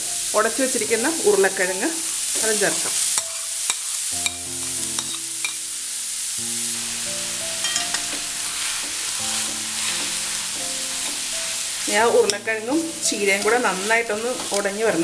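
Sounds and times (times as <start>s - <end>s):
food sizzling in pan: 0.0s - 15.0s
quiet background music: 0.0s - 15.0s
spoon scraping metal pan: 7.6s - 12.5s.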